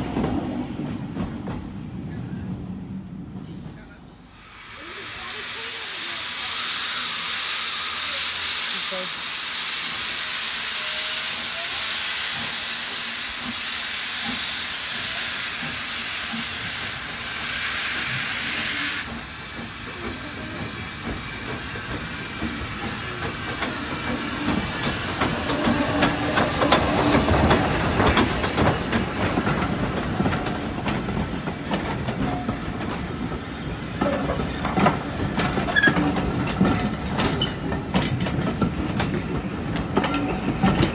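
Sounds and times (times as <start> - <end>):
steam locomotive hissing: 3.4 - 40.9
train wheels clicking over rails: 11.2 - 40.9.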